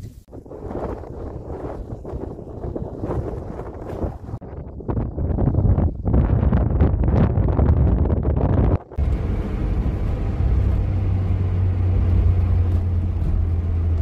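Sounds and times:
wind buffeting microphone: 0.0s - 14.0s
engine and road noise in car: 9.0s - 14.0s.

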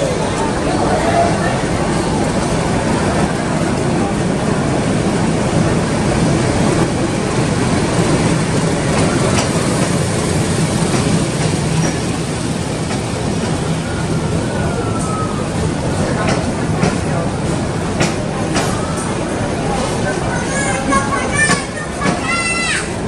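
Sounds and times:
train rumbling: 0.0s - 23.0s
wheels clicking over rails: 5.6s - 13.7s.

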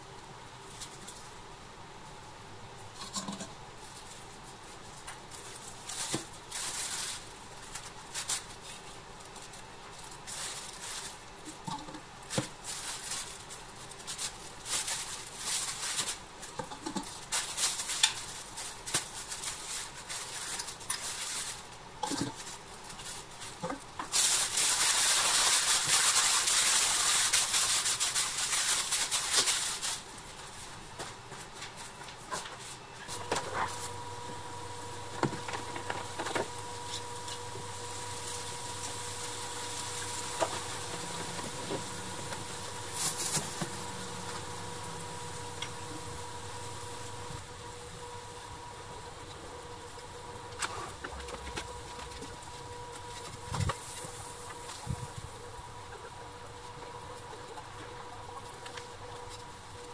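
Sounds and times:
loud hissing rush: 33.1s - 47.9s
small motor humming whine: 33.1s - 59.9s.

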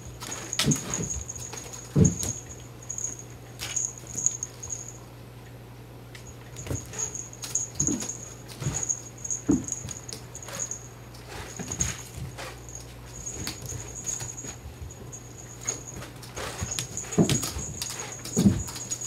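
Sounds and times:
heavy landing thuds: 0.0s - 3.1s, 6.6s - 10.8s
cats' paws pattering on carpet: 0.0s - 4.9s, 6.2s - 19.0s.

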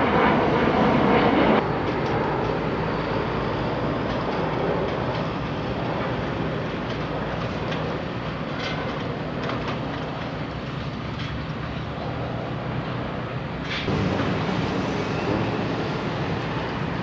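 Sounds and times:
heavy machinery rumble: 13.6s - 17.0s.

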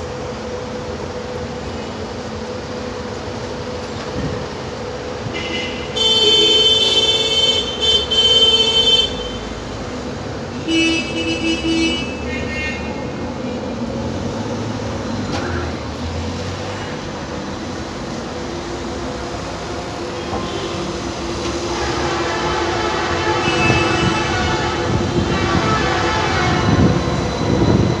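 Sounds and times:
street and tram traffic rumble: 0.0s - 28.0s
vehicle horn: 5.3s - 9.6s, 10.6s - 13.0s, 20.2s - 20.9s, 21.7s - 27.0s.

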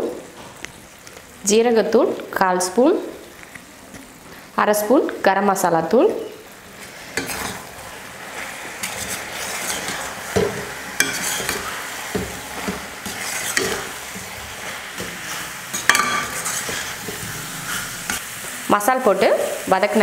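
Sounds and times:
food sizzling: 0.0s - 20.0s
metal spoon scraping pan: 6.8s - 18.2s.

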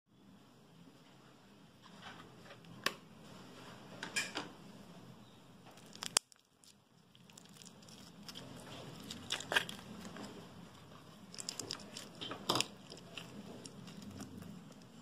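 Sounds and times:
plastic tubs clicking and crackling: 5.8s - 15.0s.

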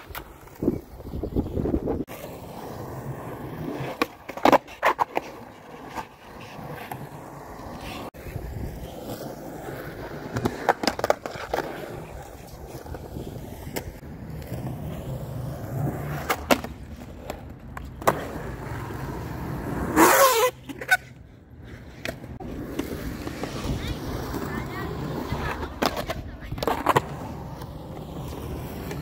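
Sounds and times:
skateboard wheels rolling on concrete: 0.0s - 29.0s
skateboard scraping ramp lip: 1.5s - 29.0s
skateboard clacking on ground: 2.1s - 8.1s, 10.0s - 15.0s, 15.6s - 18.9s, 20.0s - 29.0s.

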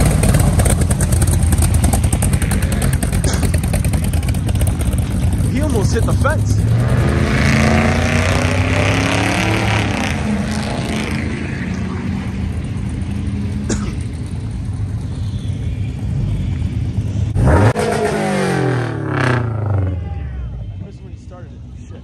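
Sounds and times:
car engine revving sharply: 0.0s - 13.6s, 17.3s - 20.0s
car engines rumbling: 0.0s - 22.0s.

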